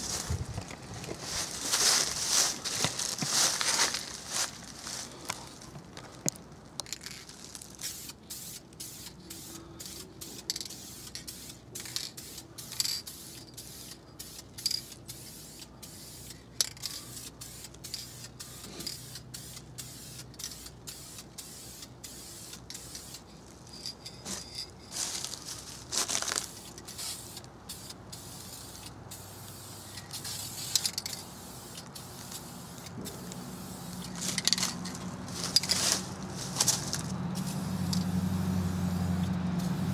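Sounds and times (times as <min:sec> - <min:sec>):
aerosol can spraying: 0:07.8 - 0:23.3, 0:26.5 - 0:36.8.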